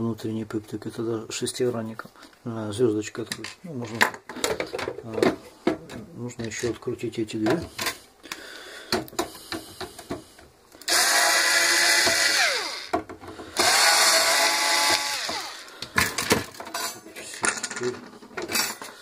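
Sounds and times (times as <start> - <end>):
electric screwdriver whining: 10.9 - 13.0, 13.6 - 15.7.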